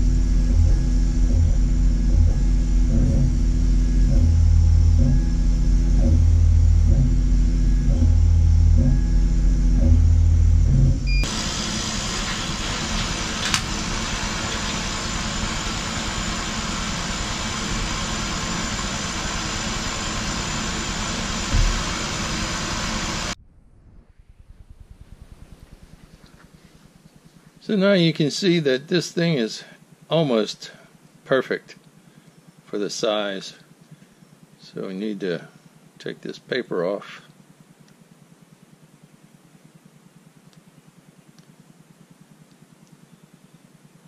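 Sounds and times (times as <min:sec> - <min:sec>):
laser cutter head motors: 0:00.0 - 0:23.4
low mechanical pulse: 0:00.0 - 0:28.2
machine fans rushing: 0:00.0 - 0:29.5.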